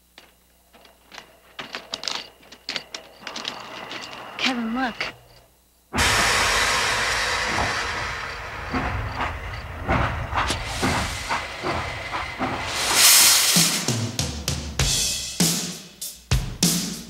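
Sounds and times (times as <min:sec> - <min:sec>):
steam locomotive hissing: 0:05.9 - 0:15.2.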